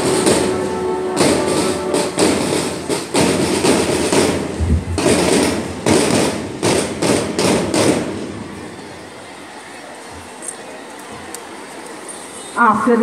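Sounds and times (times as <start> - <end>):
marching band drums beating: 0.0 - 8.7.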